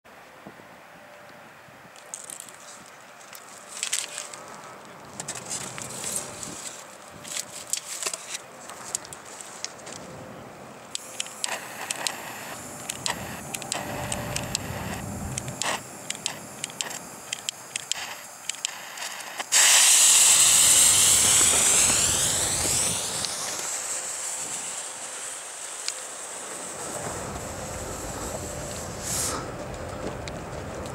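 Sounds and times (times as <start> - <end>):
mortar tube handled on gritty ground: 2.0 - 10.1
firework fuse hissing and sputtering: 5.2 - 9.8, 11.0 - 30.9.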